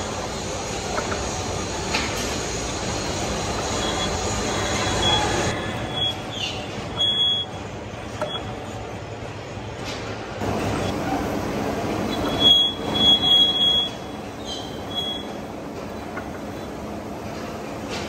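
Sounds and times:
high-pitched squeals: 12.0s - 15.4s.

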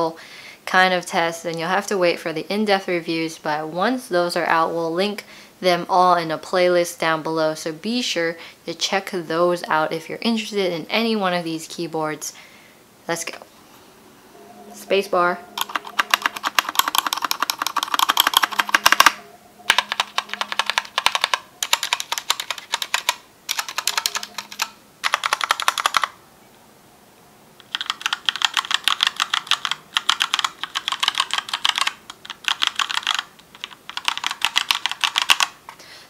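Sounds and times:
mechanical keyboard typing: 15.6s - 26.2s, 27.6s - 35.6s.

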